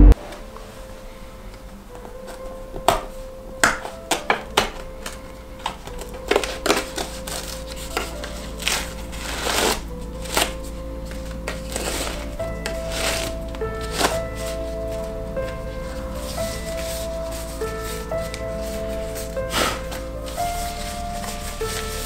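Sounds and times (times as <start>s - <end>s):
quiet background music: 0.0s - 22.0s
cardboard and plastic rustling: 1.8s - 22.0s
packaging clicks and taps: 2.0s - 8.9s.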